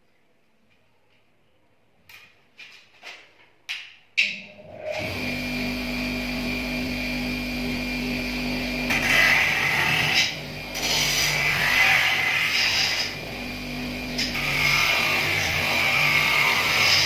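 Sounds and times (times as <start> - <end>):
bench grinder motor humming: 4.9 - 17.0.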